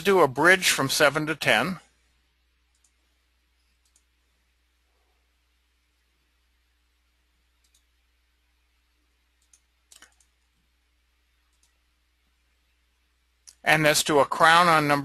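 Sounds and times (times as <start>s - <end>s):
computer mouse clicking: 2.7s - 3.0s, 3.8s - 4.1s, 7.6s - 7.9s, 9.4s - 10.5s, 11.5s - 11.8s.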